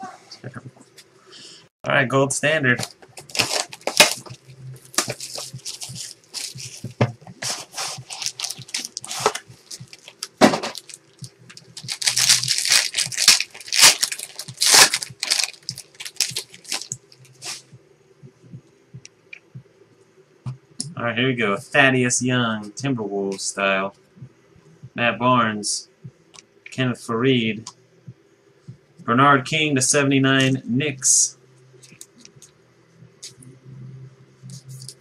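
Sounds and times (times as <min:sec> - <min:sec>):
plastic wrapping torn and crinkled: 0:02.8 - 0:07.0, 0:07.6 - 0:17.2.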